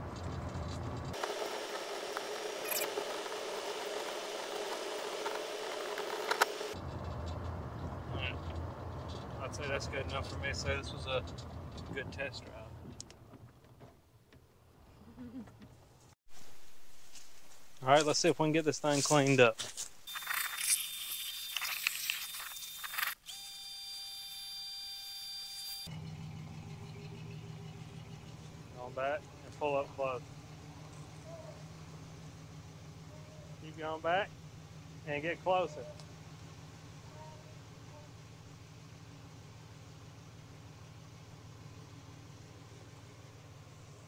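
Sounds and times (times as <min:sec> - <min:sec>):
electric cart humming: 0:00.0 - 0:12.9, 0:24.6 - 0:33.7
tyre and road noise: 0:00.0 - 0:16.2, 0:25.8 - 0:44.0
hose spraying water: 0:20.1 - 0:23.1.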